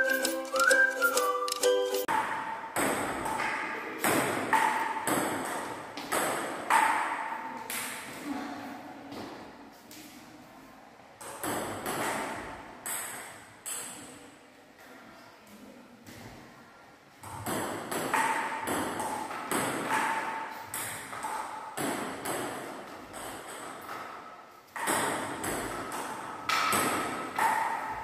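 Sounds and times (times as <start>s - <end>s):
table tennis ball clicking: 0.0s - 2.2s.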